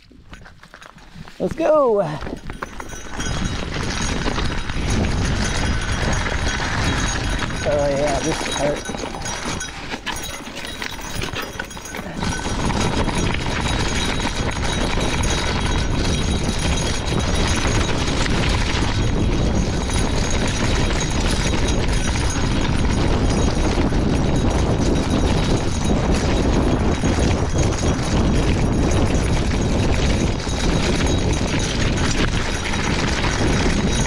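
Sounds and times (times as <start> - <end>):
tyres crunching on stones: 0.0 - 14.0
bike rattling: 0.0 - 34.0
wind buffeting microphone: 0.0 - 34.0.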